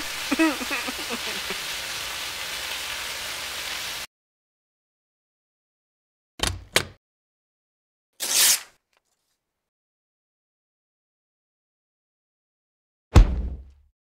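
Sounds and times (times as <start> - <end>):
rushing hiss: 0.0 - 4.1.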